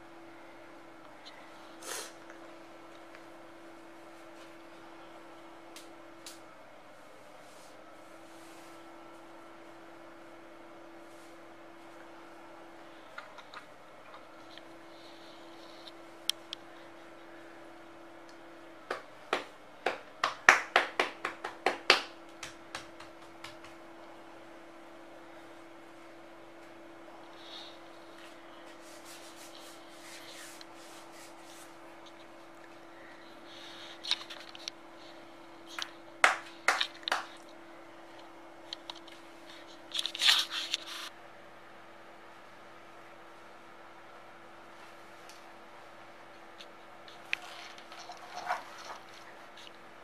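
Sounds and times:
palms patting on cloth: 18.9s - 23.9s, 36.2s - 37.5s
paper and wrapping rustling: 47.1s - 49.8s.

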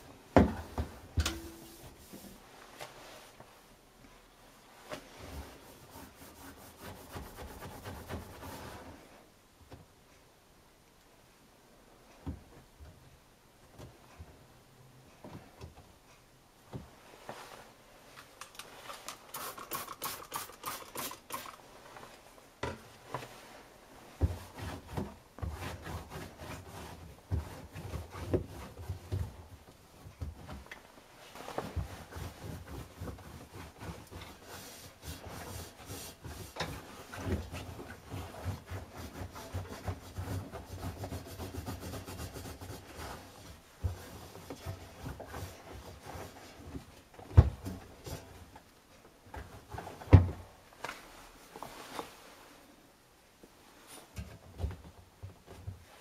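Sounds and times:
hand scrubbing and wiping: 5.0s - 9.0s, 18.7s - 21.9s, 31.2s - 46.7s.

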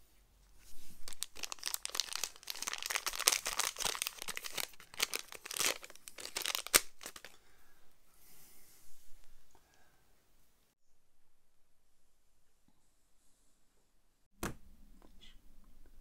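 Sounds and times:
plastic bag crinkling: 1.0s - 7.3s.

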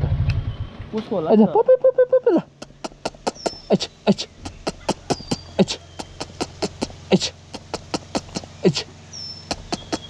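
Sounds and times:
deep tongue clucks: 2.1s - 10.0s
mouth clicks and kissing sounds: 2.2s - 10.0s.

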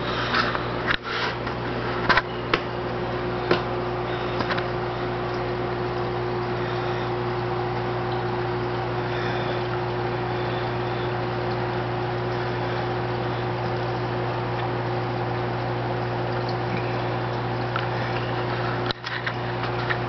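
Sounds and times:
hiss of moving water: 0.0s - 2.0s, 3.7s - 14.6s
aquarium pump hum: 0.0s - 20.0s.

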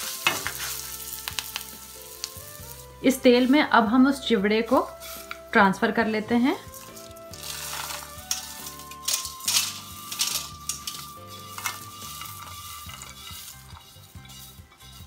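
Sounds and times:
flakes and nuts rattling into pan: 0.0s - 2.8s, 6.7s - 15.0s
light oil sizzle: 0.0s - 15.0s.

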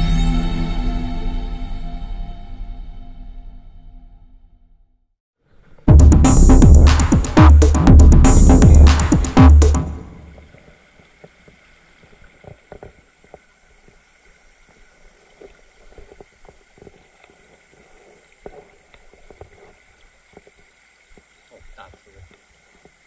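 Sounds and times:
electronic music: 5.9s - 10.4s
stream running over rocks: 9.9s - 23.0s
small splashes and knocks: 10.2s - 23.0s.

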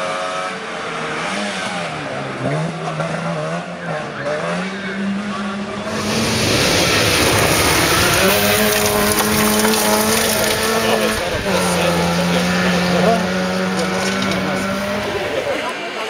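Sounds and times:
two-stroke car engine revving: 0.0s - 16.0s
tyres hissing on gravel: 5.9s - 12.3s.

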